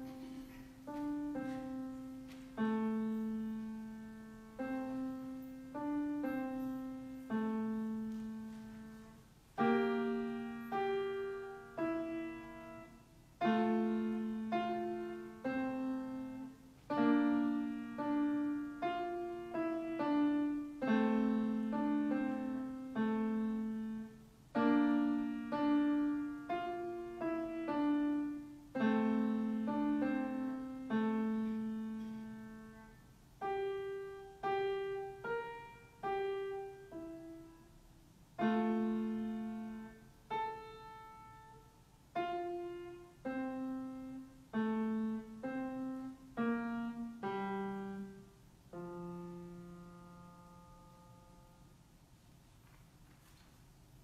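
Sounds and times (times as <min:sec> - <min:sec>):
piano melody: 0:00.0 - 0:51.9.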